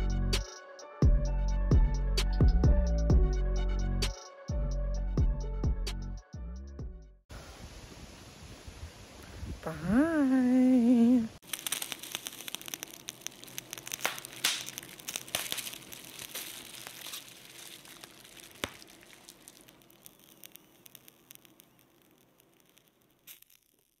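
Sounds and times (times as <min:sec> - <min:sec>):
campfire crackling: 0:10.9 - 0:24.0.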